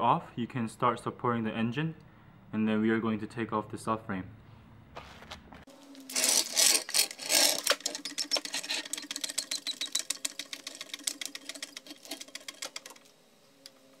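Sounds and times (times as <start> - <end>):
faint steady hum: 5.7 - 14.0
jack mechanical clicks: 6.0 - 14.0.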